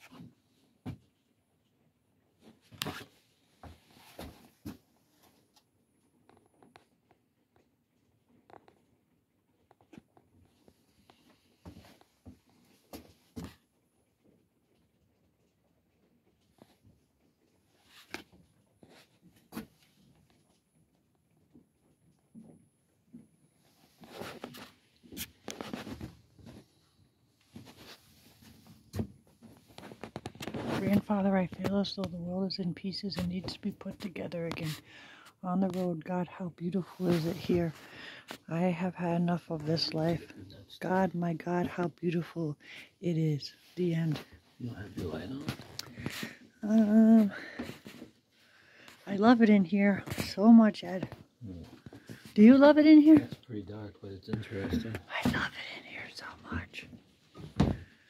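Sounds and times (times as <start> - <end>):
soft rustling: 23.6 - 32.4, 36.8 - 38.5, 42.7 - 53.5
clothing rustling: 27.4 - 28.9.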